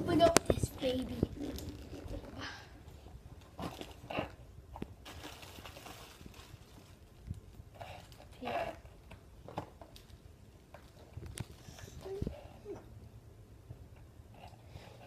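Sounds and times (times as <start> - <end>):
plastic air pillows crinkling: 3.5 - 8.8.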